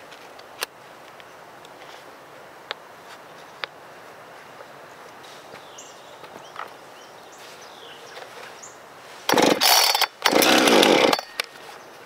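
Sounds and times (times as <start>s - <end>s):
engine turning over: 9.3s - 11.4s
chainsaw starter cord pulls: 9.3s - 11.5s.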